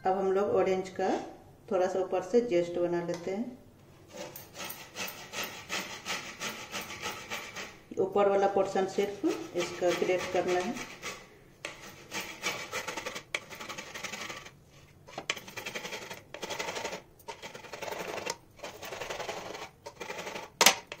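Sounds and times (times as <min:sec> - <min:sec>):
orange peel rasping on grater: 0:04.2 - 0:07.8, 0:09.1 - 0:14.6, 0:17.3 - 0:21.0.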